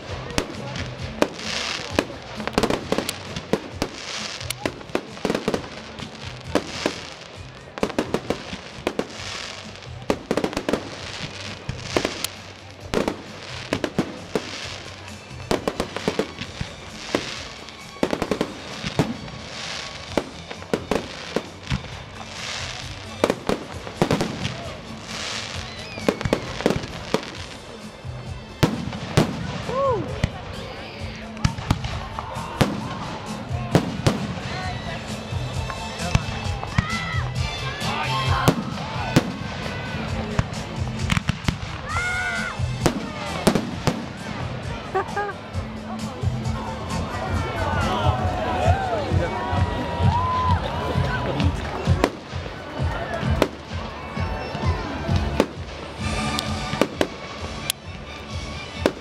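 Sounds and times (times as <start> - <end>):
firework bangs and crackles: 0.0 - 59.0
music playing: 0.0 - 59.0
falling firework whistle: 25.3 - 26.9.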